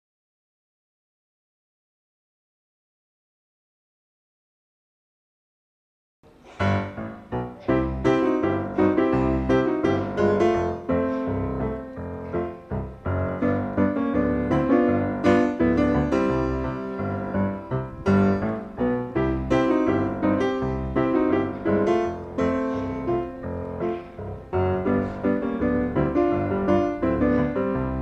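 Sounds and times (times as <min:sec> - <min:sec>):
piano music: 0:06.5 - 0:28.0.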